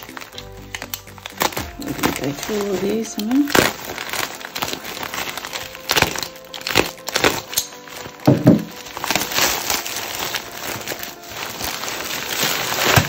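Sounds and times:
background music: 0.0s - 13.0s
plastic wrap crinkling and tearing: 0.0s - 13.0s.

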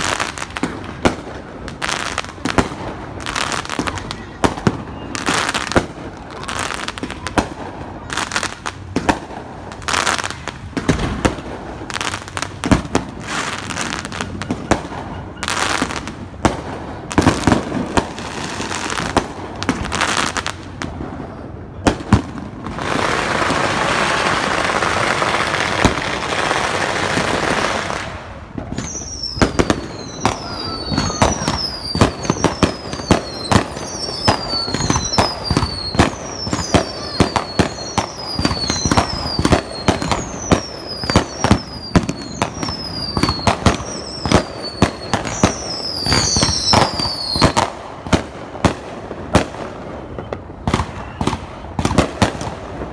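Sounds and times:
fireworks banging and crackling: 0.0s - 52.9s
short high falling whistle: 28.8s - 47.6s.

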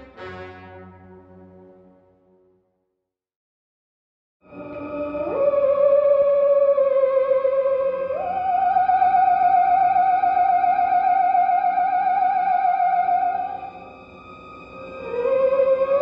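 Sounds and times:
theremin-style melody with vibrato: 4.5s - 14.0s, 14.8s - 16.0s.

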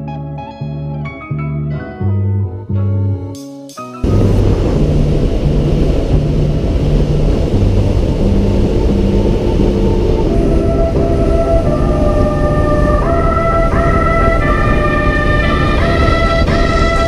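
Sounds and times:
guitar music: 0.0s - 17.0s
soft background music: 0.0s - 17.0s
road rumble: 4.0s - 17.0s
wind buffeting: 4.0s - 17.0s.

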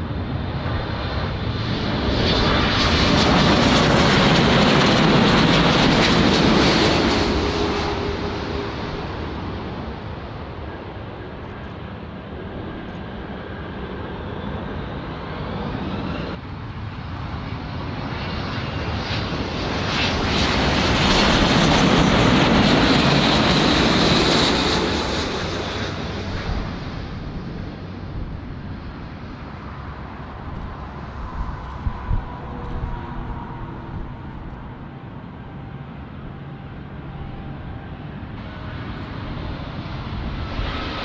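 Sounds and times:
airliner rolling on runway: 0.0s - 41.0s
jet engines with high whine: 0.0s - 41.0s.

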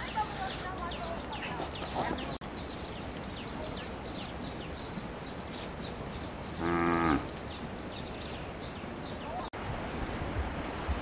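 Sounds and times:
cow mooing: 6.6s - 7.3s.

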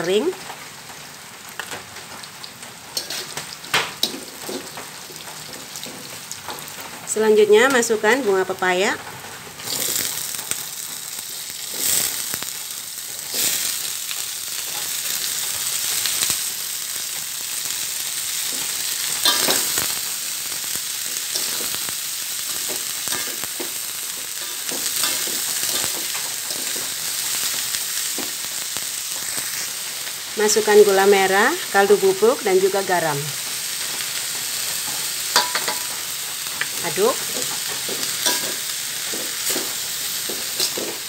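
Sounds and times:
flowers sizzling in hot oil: 0.0s - 41.0s
metal spatula scraping wok: 3.0s - 6.2s, 18.5s - 20.0s, 34.9s - 41.0s.

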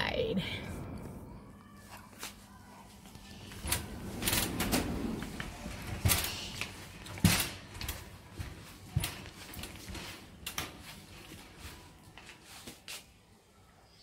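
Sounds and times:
shopping trolley rattling: 3.2s - 12.7s.

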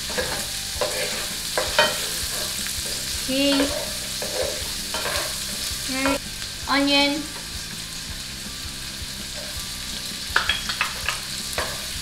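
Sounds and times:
vegetables sizzling in a skillet: 0.0s - 12.0s.

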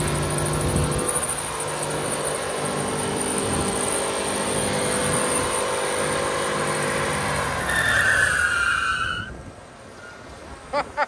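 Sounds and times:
truck engine at high revs: 0.0s - 10.9s
tyre squeal: 6.7s - 9.4s.

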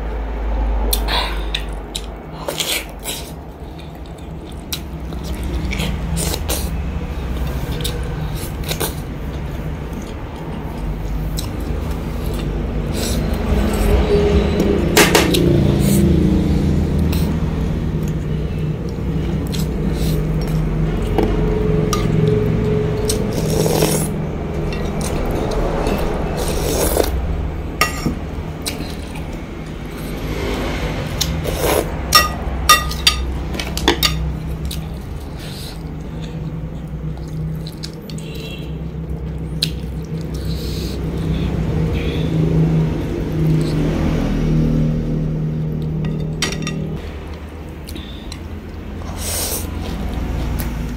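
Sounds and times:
steady low hum: 0.0s - 50.9s
chewing: 0.9s - 14.0s, 16.9s - 27.2s, 32.9s - 41.7s
spoon and chopsticks clinking on bowl: 32.1s - 34.2s.

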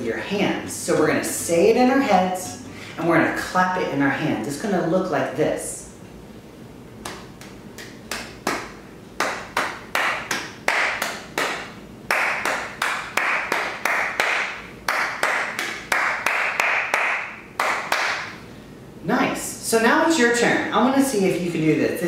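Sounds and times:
person clapping hands rhythmically: 7.0s - 18.4s.

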